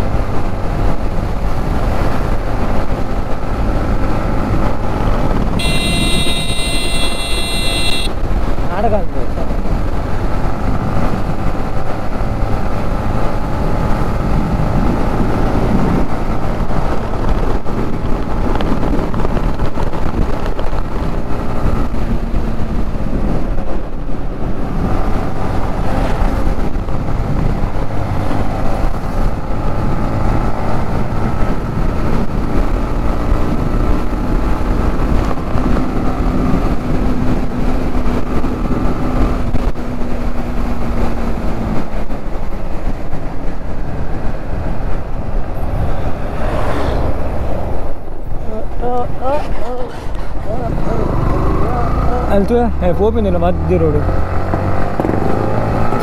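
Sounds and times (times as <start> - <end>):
wind buffeting microphone: 0.0 - 6.6, 8.0 - 53.1
motorcycle engine running: 5.4 - 8.2.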